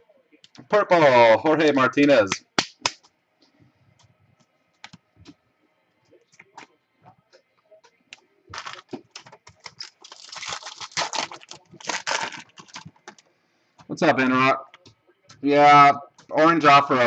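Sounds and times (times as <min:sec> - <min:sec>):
foil wrapper crinkling and tearing: 0:08.6 - 0:08.9, 0:09.5 - 0:12.9.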